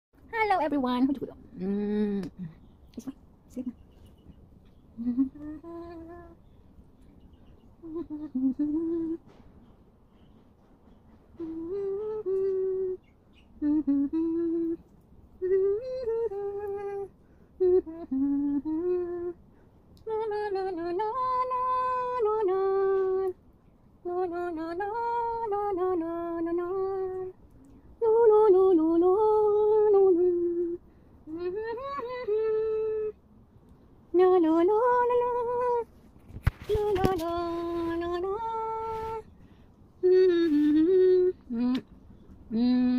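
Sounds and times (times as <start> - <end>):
woman humming a gentle tune: 1.5 - 3.8, 5.0 - 6.4, 7.8 - 9.3, 11.3 - 19.4, 20.0 - 23.4, 24.0 - 27.4, 28.0 - 33.2, 36.7 - 39.3, 40.0 - 42.9.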